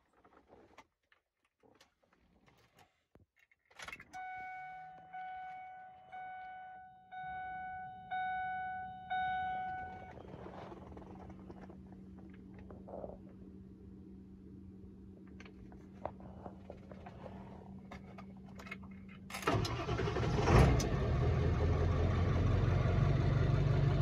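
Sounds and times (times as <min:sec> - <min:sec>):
low steady hum: 0:03.9 - 0:19.6
dashboard warning chime: 0:04.1 - 0:10.3.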